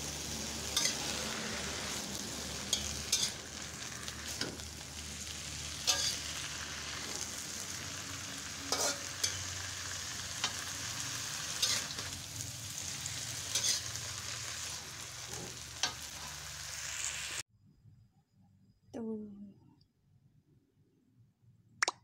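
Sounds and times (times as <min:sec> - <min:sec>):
greens sizzling in a wok: 0:00.0 - 0:17.4
metal spatula scraping a pan: 0:00.4 - 0:17.3.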